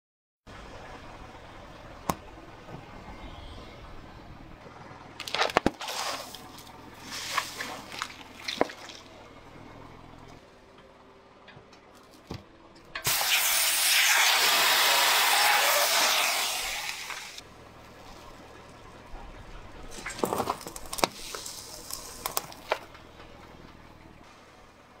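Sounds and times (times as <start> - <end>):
spray can bursting and hissing: 13.0 - 17.4
tyre crushing small objects: 19.9 - 23.1.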